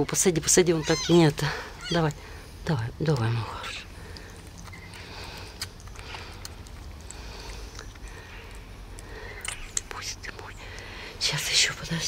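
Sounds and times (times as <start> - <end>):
low steady hum: 0.0 - 12.0
kitten suckling wet clicks: 3.1 - 10.9.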